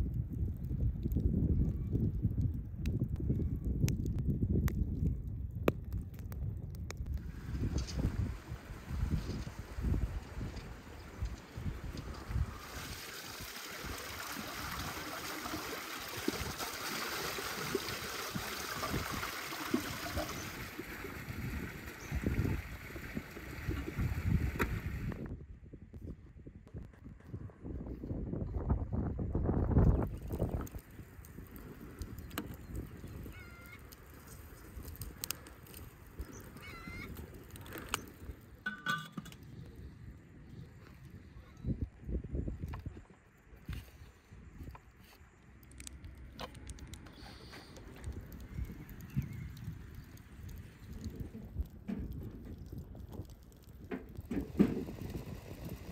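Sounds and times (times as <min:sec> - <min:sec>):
low wind rumble: 0:00.0 - 0:55.9
fountain water splashing on stone: 0:07.3 - 0:25.2, 0:47.8 - 0:55.9.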